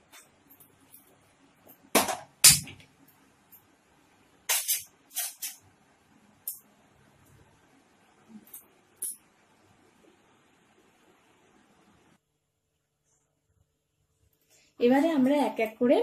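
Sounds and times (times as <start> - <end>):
kitchen utensils clattering: 4.5 - 5.6.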